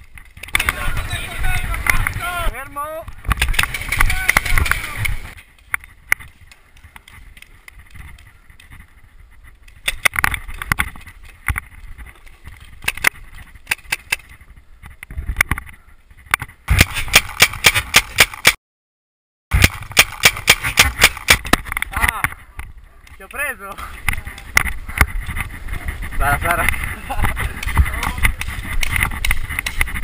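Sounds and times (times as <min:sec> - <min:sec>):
paintball markers firing: 0:03.2 - 0:05.3, 0:16.7 - 0:18.6, 0:19.6 - 0:22.3.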